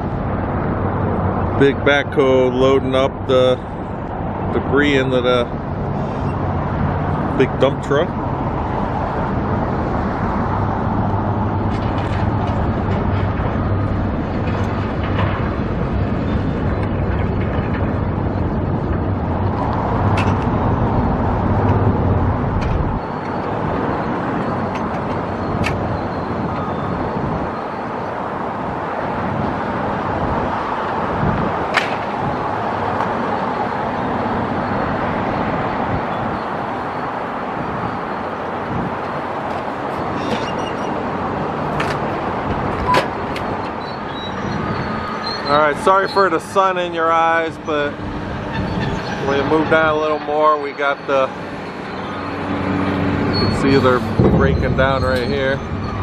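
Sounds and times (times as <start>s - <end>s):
street traffic: 0.0s - 56.0s
heavy engine humming: 3.5s - 56.0s.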